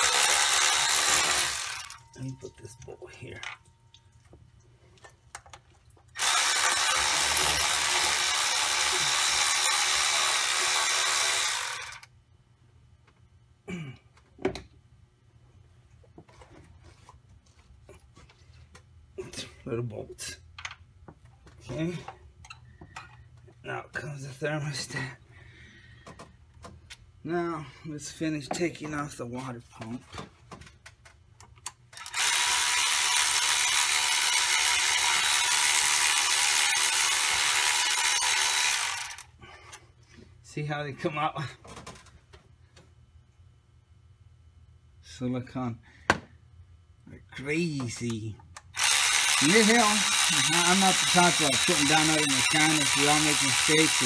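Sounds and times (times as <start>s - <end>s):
cordless power tool running: 0.0s - 2.0s, 6.2s - 12.1s, 32.0s - 39.3s, 48.8s - 54.0s.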